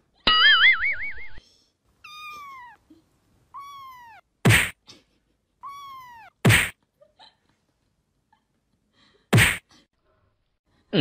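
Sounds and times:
cat meowing: 0:02.0 - 0:02.8, 0:03.5 - 0:04.3, 0:05.6 - 0:06.4
sharp slap-like hits: 0:04.4 - 0:04.8, 0:06.4 - 0:06.8, 0:09.3 - 0:09.7.

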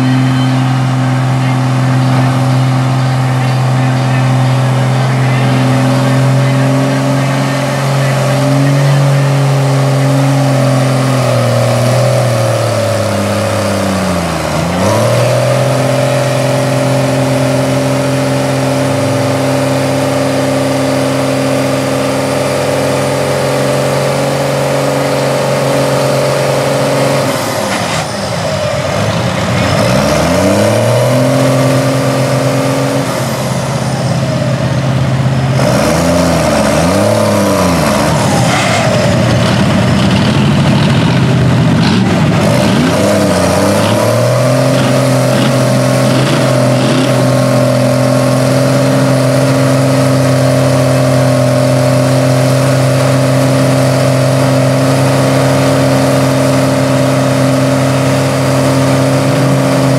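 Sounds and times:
truck engine revving: 0:00.0 - 0:59.9.

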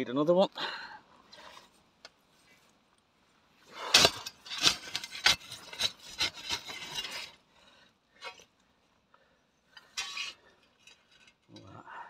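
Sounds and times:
shovel scraping into ash and stones: 0:03.6 - 0:07.4, 0:08.2 - 0:08.5, 0:09.8 - 0:11.8.

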